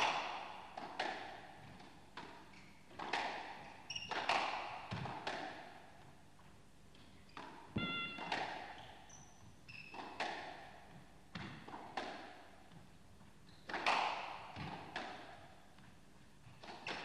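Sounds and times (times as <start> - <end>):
squash ball cracks on racket and wall: 0.0 - 5.9, 7.4 - 8.8, 9.9 - 12.5, 13.7 - 15.5
shoe squeaks on court floor: 3.7 - 4.4, 7.2 - 10.2, 13.4 - 13.8.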